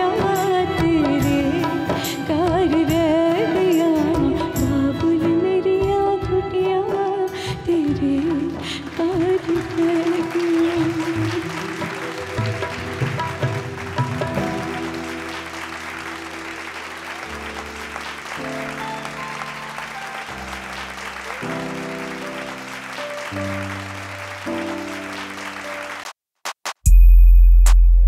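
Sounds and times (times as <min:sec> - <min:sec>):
audience applause: 0:08.2 - 0:26.1.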